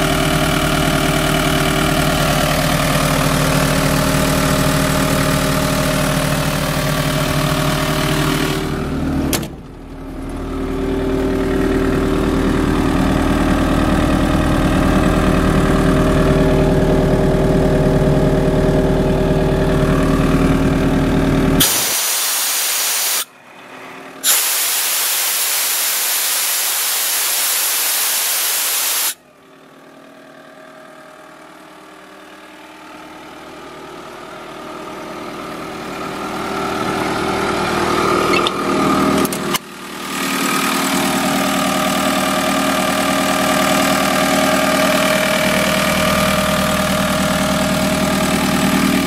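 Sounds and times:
diesel engine running: 0.0s - 27.4s, 28.2s - 49.0s
compressed air hissing: 21.6s - 23.3s, 24.2s - 29.2s.

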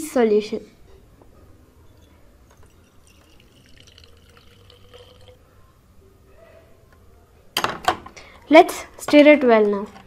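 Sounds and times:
liquid trickling and dripping: 2.5s - 5.4s.

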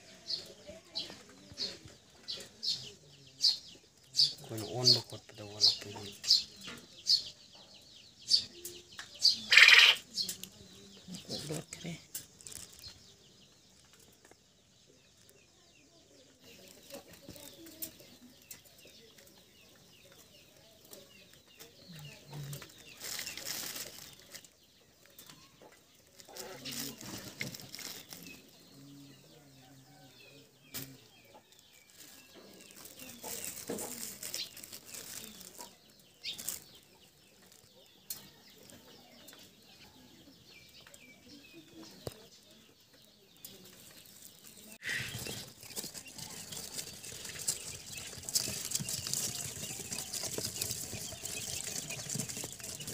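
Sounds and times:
chick peeping: 0.0s - 52.9s
rustling: 21.6s - 28.7s, 31.5s - 38.3s, 43.4s - 52.9s.

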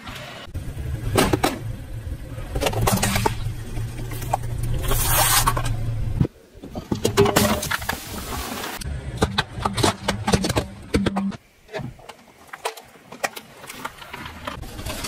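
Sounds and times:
car engine running low: 0.5s - 6.2s.

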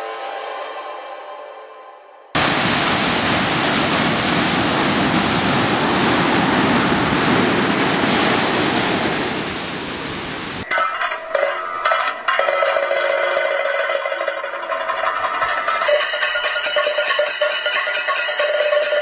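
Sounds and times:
sea surf breaking on beach: 2.4s - 10.7s.

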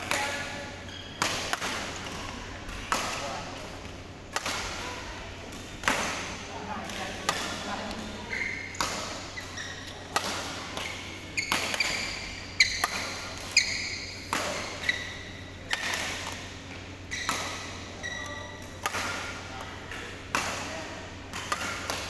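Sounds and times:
rackets hitting shuttlecock: 0.0s - 4.9s, 5.5s - 22.0s
shoes squeaking on court: 0.2s - 2.3s, 7.4s - 16.4s, 17.0s - 18.6s.

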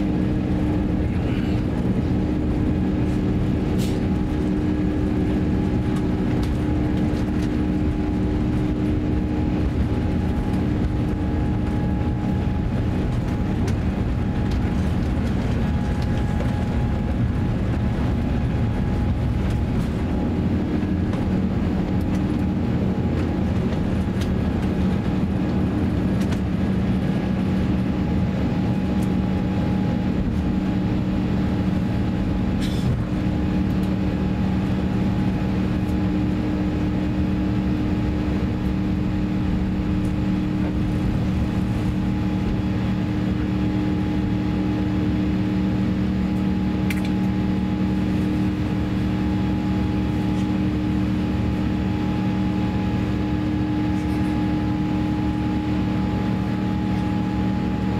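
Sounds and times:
jet engines droning: 0.0s - 57.9s
steady low hum: 0.0s - 57.9s.

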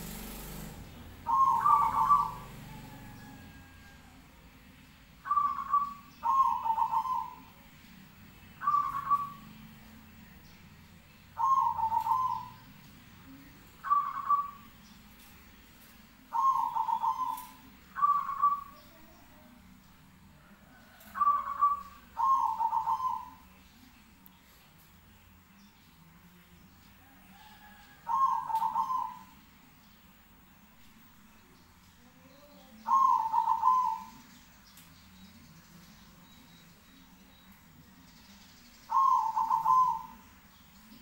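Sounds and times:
dove cooing: 0.0s - 4.1s, 5.2s - 7.6s, 8.6s - 9.6s, 11.4s - 12.6s, 13.8s - 14.7s, 16.3s - 19.1s, 20.4s - 23.5s, 27.1s - 29.4s, 32.7s - 34.2s, 38.9s - 40.3s.

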